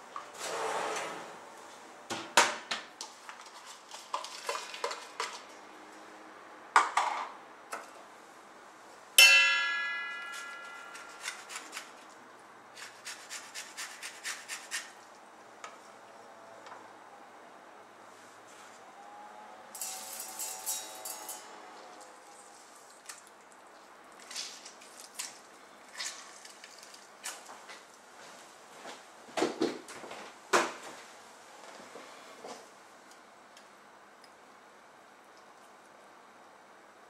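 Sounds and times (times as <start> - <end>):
sharp ringing metal strike: 9.2 - 11.2.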